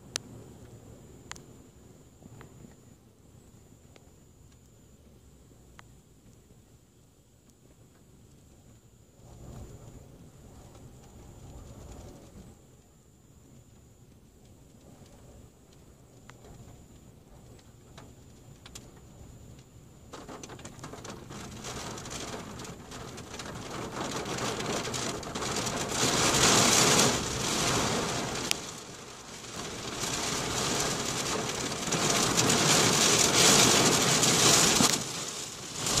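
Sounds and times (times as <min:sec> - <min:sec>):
rain on car windshield and roof: 0:07.7 - 0:36.0.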